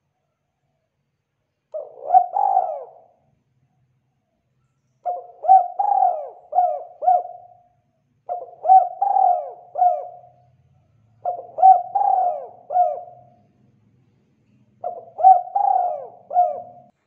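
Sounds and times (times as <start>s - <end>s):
dove cooing: 1.7s - 3.2s, 5.0s - 13.6s, 14.8s - 17.0s.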